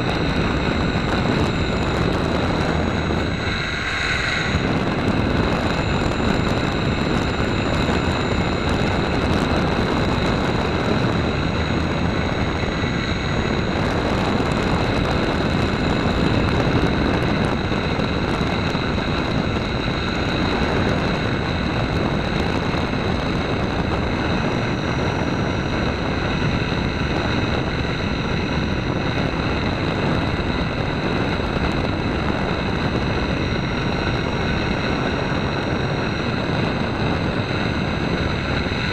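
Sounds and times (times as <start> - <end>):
model airplane motor whine: 0.0 - 38.9
rush of air: 0.0 - 38.9.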